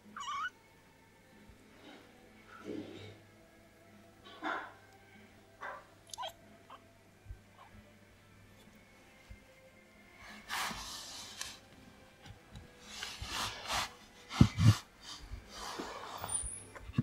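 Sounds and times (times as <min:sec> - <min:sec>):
kittens scuffling on bedding: 0:12.8 - 0:16.8.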